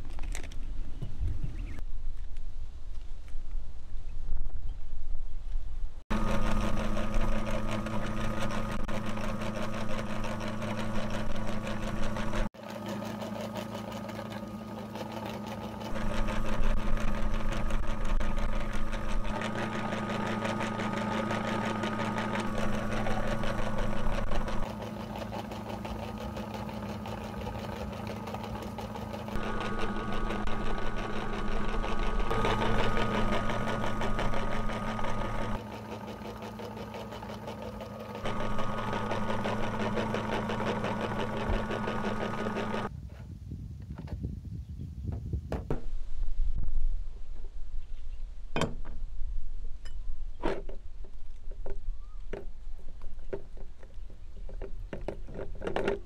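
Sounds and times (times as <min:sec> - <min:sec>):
meat grinder humming: 0:06.1 - 0:42.9.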